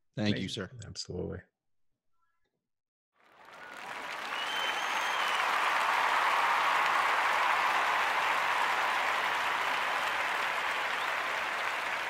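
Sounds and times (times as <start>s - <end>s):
crowd applause: 3.2s - 12.0s.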